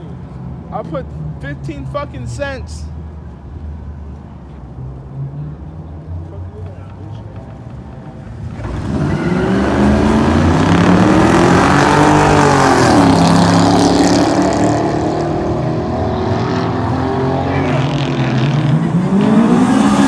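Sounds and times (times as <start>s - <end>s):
car engine revving: 8.2s - 20.0s.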